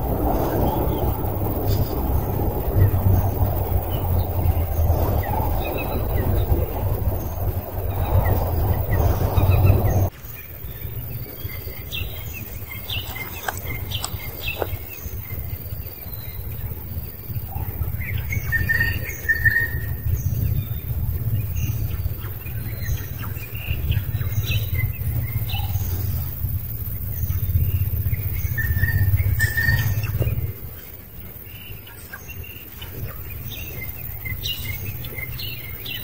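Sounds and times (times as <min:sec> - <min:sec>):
loud rough noise: 0:00.0 - 0:10.1
birds chirping: 0:00.0 - 0:36.0
steady low rumble: 0:00.0 - 0:36.0.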